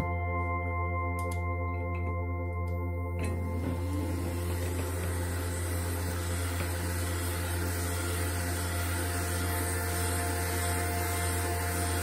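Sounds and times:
hot air gun blowing: 0:03.8 - 0:12.0.

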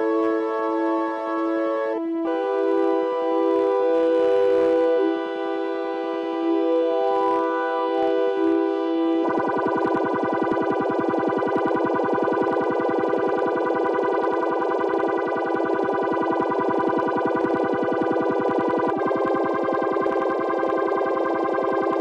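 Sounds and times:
pulsing synthesizer chord: 0:02.2 - 0:22.0.

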